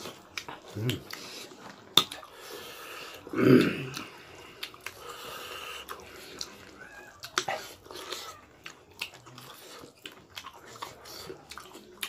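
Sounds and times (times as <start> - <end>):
mouth clicks and smacks: 0.0 - 2.4, 5.8 - 12.0
throaty voiced sound: 3.3 - 4.1.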